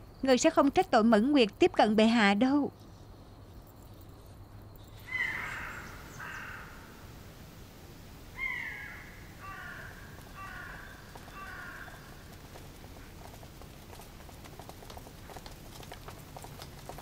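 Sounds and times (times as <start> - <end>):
birds calling with falling calls: 4.7 - 7.2, 8.3 - 14.3.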